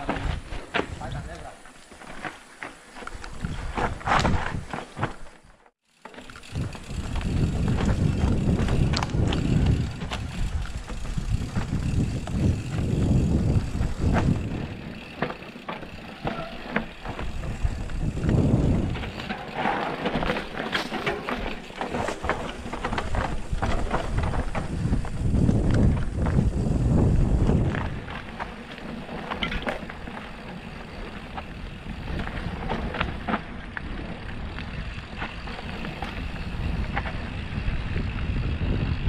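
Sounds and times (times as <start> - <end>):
bike rattling over rocky trail: 0.0 - 39.0
wind rumbling on microphone: 3.1 - 5.1, 6.4 - 15.2, 17.0 - 20.5, 22.0 - 29.8, 30.8 - 39.0.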